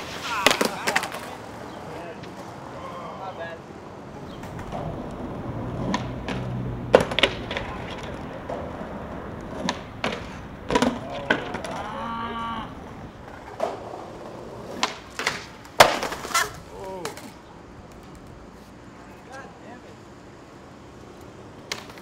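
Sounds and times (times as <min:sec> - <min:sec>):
skater slamming to ground: 0:00.0 - 0:01.4, 0:14.8 - 0:16.6
skateboard clacks on concrete: 0:00.0 - 0:02.6, 0:04.3 - 0:12.0, 0:13.2 - 0:18.4, 0:21.1 - 0:22.0.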